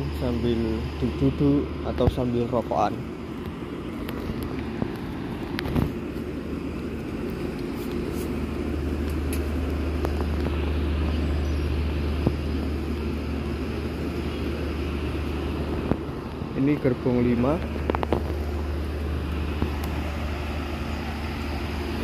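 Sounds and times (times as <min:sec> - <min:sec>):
train diesel engine idling: 0:00.0 - 0:22.0.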